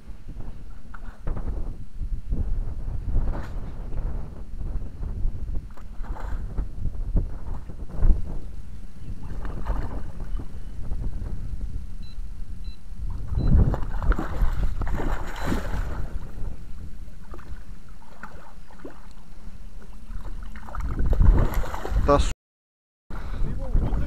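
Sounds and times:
steady low rumble: 0.0 - 17.8
fish thrashing and splashing: 13.6 - 16.2, 20.1 - 22.0.

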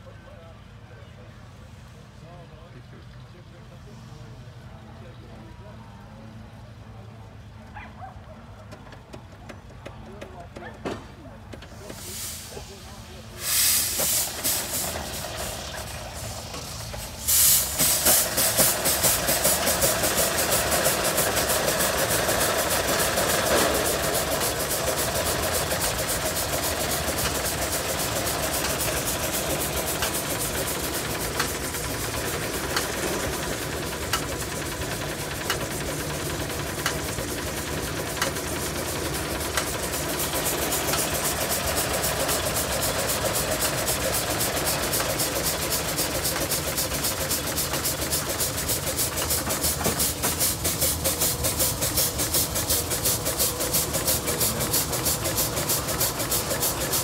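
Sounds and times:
steam engine exhaust beating: 8.6 - 57.0
steam hiss: 11.6 - 57.0.

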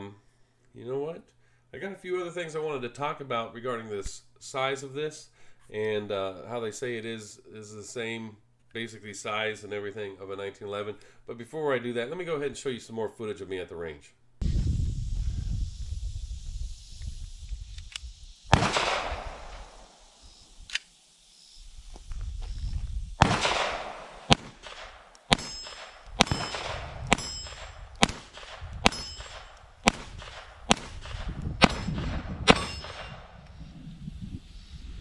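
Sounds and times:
pistol shots: 18.5 - 19.9, 23.2 - 33.4
steel plate targets ringing: 25.3 - 27.8, 28.8 - 29.6, 31.6 - 33.3.

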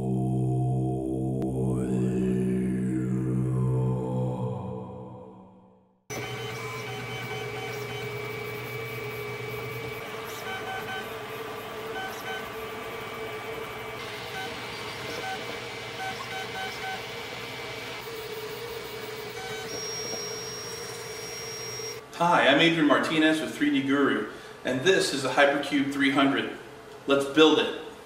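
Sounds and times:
stepper motors whining: 6.1 - 22.0
fan hum: 6.1 - 28.0.

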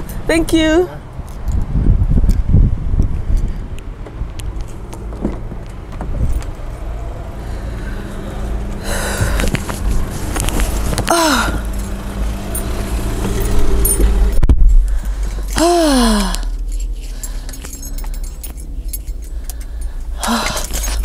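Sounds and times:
car engine idling: 3.2 - 21.0.

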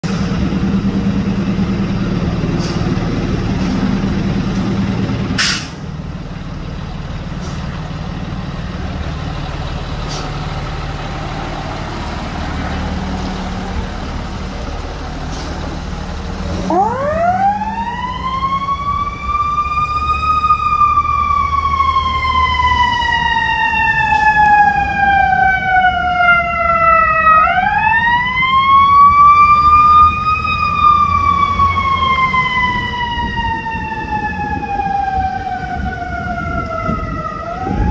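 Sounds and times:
diesel engine rumbling: 0.0 - 37.9
short hiss: 5.4 - 5.8
fire engine siren winding: 16.4 - 37.9.

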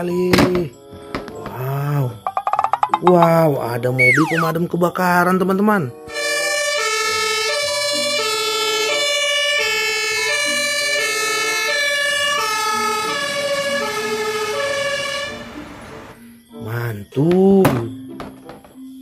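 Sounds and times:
two-tone fire engine siren: 6.1 - 16.2.

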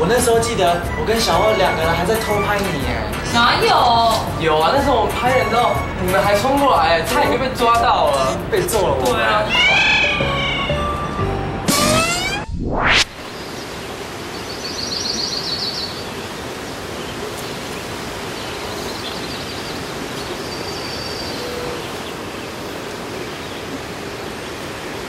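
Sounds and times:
outdoor ambience hiss: 0.0 - 25.0
rising swoosh effect: 11.7 - 13.4.

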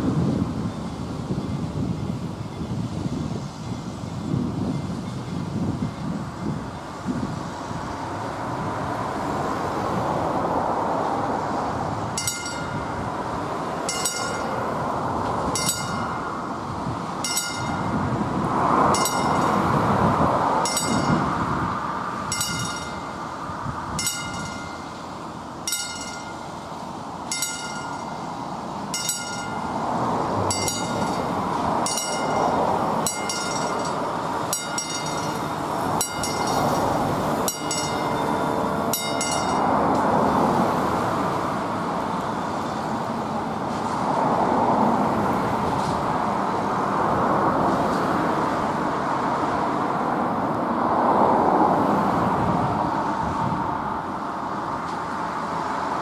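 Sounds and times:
rushing background noise: 0.0 - 56.0
level-crossing warning bell: 12.0 - 43.4.

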